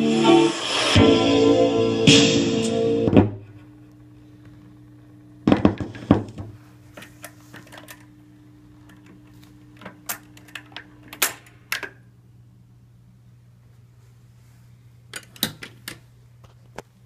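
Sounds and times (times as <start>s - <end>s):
high tone: 0.0s - 3.3s
record player humming: 0.0s - 15.1s.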